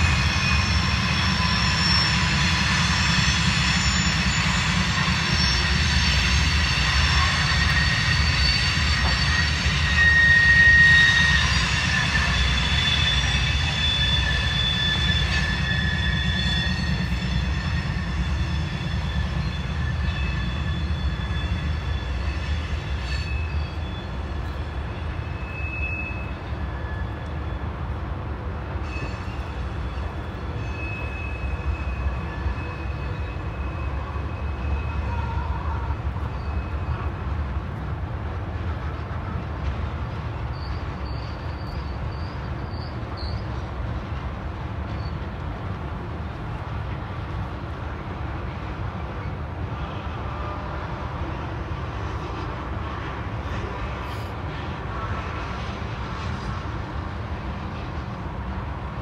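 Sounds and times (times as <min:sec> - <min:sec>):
high wheel squeal: 0:00.0 - 0:27.8, 0:28.7 - 0:37.2, 0:40.4 - 0:43.7
train wheels rumbling on rails: 0:00.0 - 0:59.0.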